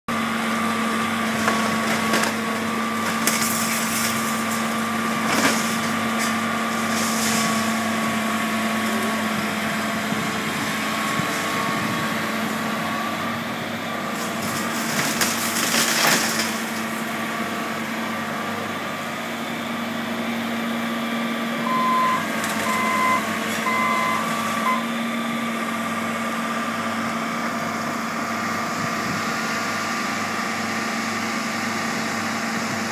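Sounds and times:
excavator diesel engine running: 0:00.1 - 0:32.9
crunching wood and debris: 0:01.4 - 0:07.8, 0:14.1 - 0:17.0
demolition crashes: 0:14.2 - 0:16.8
backup alarm beeping: 0:21.6 - 0:24.9.

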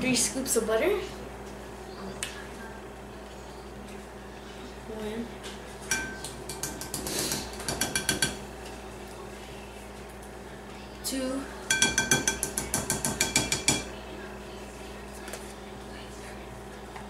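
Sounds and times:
spoon tapping ringing glass bowl: 0:05.9 - 0:07.0, 0:11.7 - 0:13.9.

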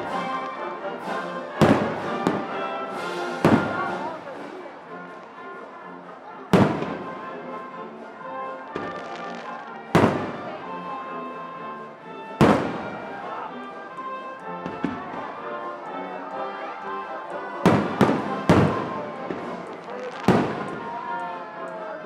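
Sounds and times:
music: 0:00.0 - 0:22.0
faint firework pops: 0:17.7 - 0:20.9.

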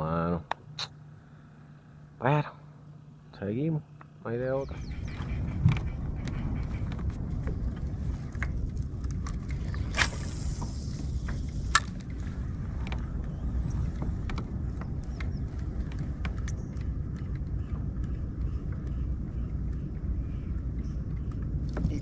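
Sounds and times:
low rumble: 0:04.6 - 0:22.0.

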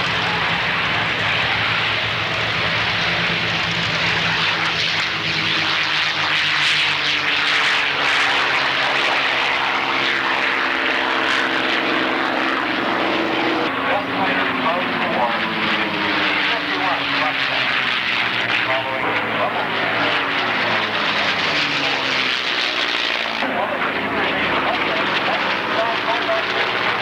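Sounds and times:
propeller planes taking off: 0:00.0 - 0:27.0.

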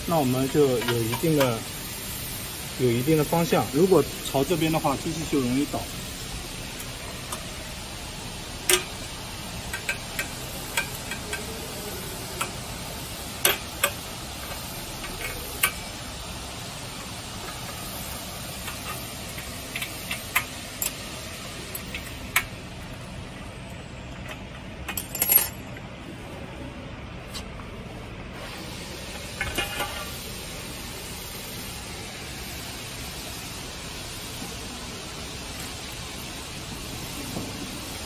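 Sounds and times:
steady hiss: 0:00.0 - 0:38.0
hex key clicking on metal bolts: 0:09.7 - 0:11.5, 0:13.4 - 0:15.8.

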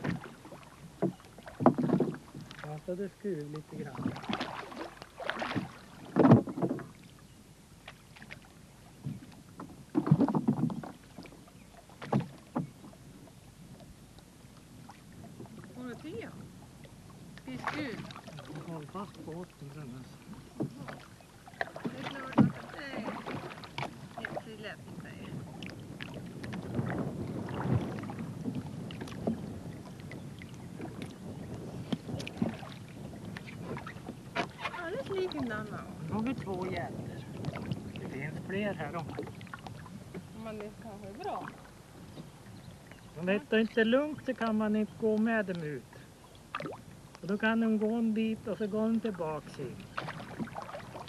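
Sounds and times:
water splashing and dripping: 0:00.0 - 0:06.9, 0:17.4 - 0:24.6
water splashing: 0:00.0 - 0:07.2, 0:07.8 - 0:51.0
knocks against rowboat: 0:01.0 - 0:02.6, 0:05.4 - 0:06.9, 0:09.0 - 0:11.0, 0:12.0 - 0:12.8, 0:20.5 - 0:24.6.

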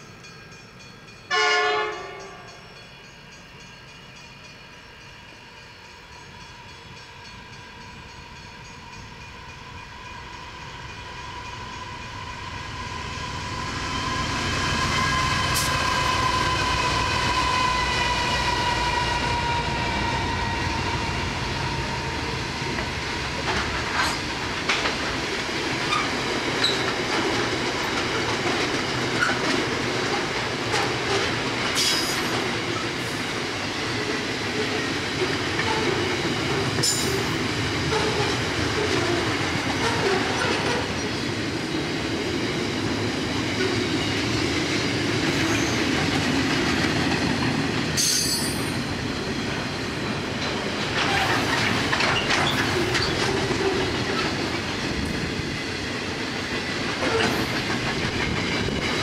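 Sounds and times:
diesel locomotives whining: 0:00.0 - 0:59.0
wheels clattering over rail joints: 0:22.7 - 0:32.9, 0:49.5 - 0:59.0
high wheel squeals: 0:25.9 - 0:27.0, 0:36.8 - 0:41.3.

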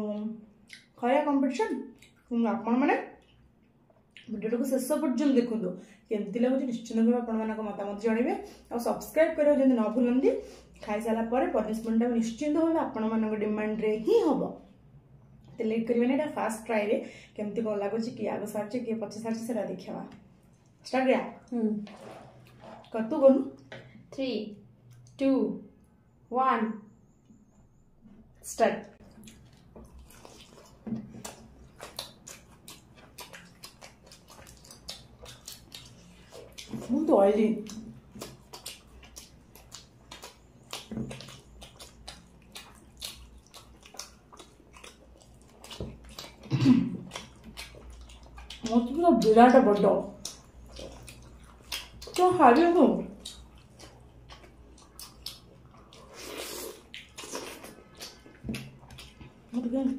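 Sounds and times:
people chewing food: 0:27.2 - 0:59.9.

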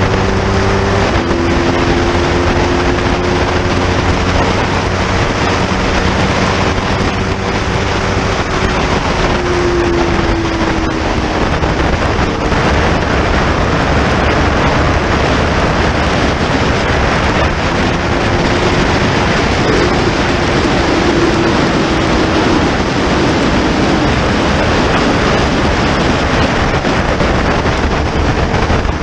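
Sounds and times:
faint motorcycle engine: 0:00.0 - 0:29.0
heavy wind rush on microphone: 0:00.0 - 0:29.0.

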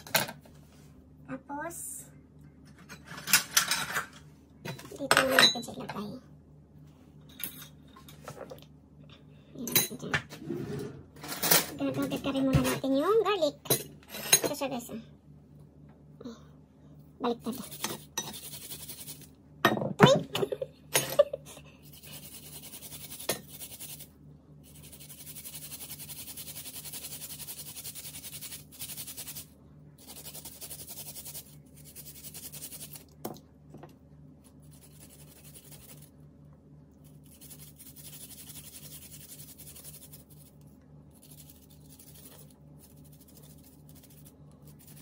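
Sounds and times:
garlic scraping on grater: 0:21.9 - 0:24.1, 0:24.7 - 0:29.4.

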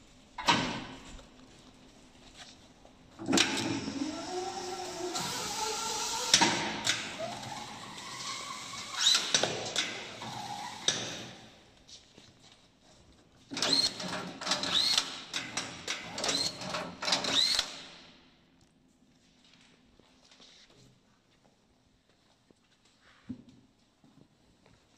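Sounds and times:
strapping machine motor whirring: 0:03.2 - 0:10.9.

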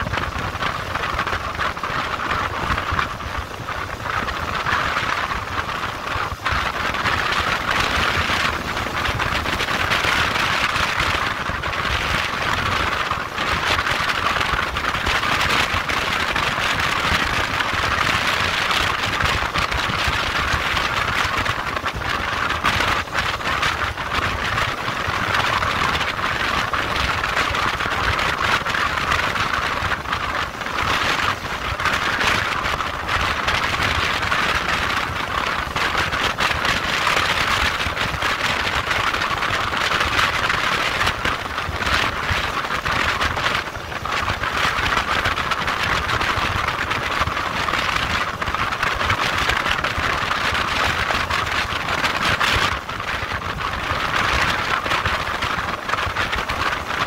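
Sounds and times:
wind noise: 0:00.0 - 0:57.0.

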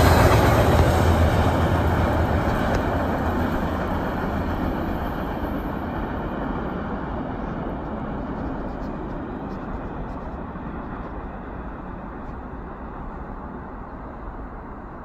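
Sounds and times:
freight train rolling on rails: 0:00.0 - 0:15.0.

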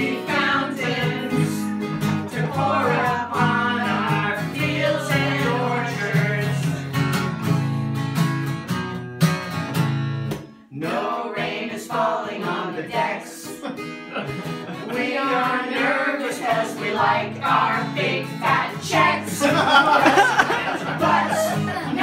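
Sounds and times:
group singing together: 0:00.0 - 0:07.0, 0:10.7 - 0:22.0
acoustic guitar strumming: 0:00.0 - 0:22.0.

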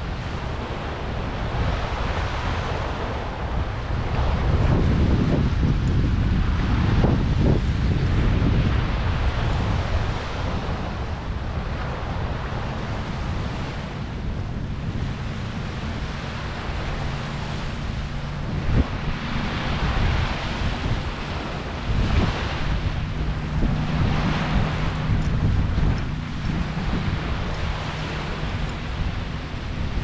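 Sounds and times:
surf washing on shore: 0:00.0 - 0:30.0
wind rumbling on microphone: 0:00.0 - 0:30.0.

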